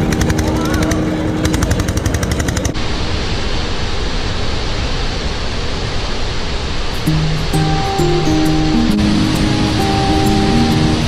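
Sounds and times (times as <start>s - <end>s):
diesel engine chugging: 0.0s - 2.8s
waterfall roaring: 0.0s - 11.0s.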